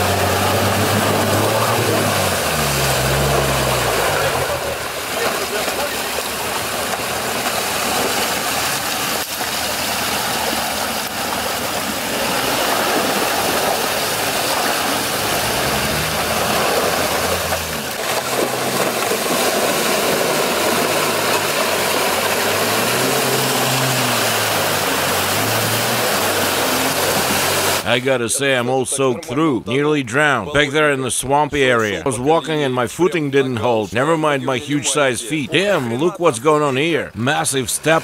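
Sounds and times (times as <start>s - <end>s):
water splashing around tyres: 0.0s - 27.9s
car engine revving: 0.0s - 28.0s.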